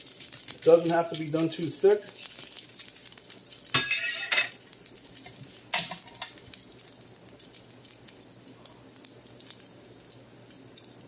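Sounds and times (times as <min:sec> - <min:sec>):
food sizzling: 0:00.0 - 0:11.0.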